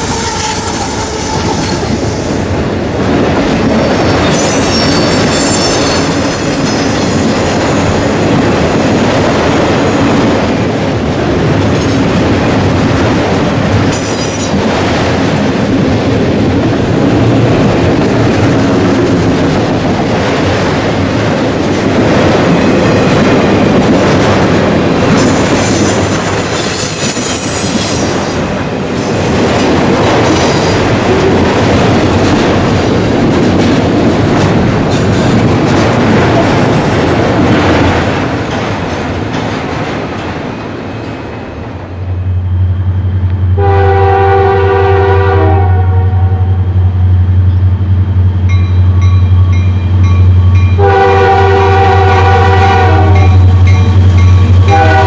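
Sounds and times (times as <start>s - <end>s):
high wheel squeal: 0.0s - 2.2s, 3.8s - 7.9s
freight train wheel clatter: 0.0s - 42.0s, 47.4s - 55.0s
diesel locomotive engine drone: 0.0s - 55.0s.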